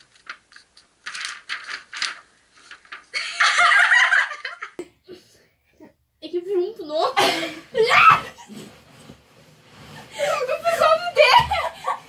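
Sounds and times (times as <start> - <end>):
girls laughing: 3.1 - 4.8, 10.0 - 12.0.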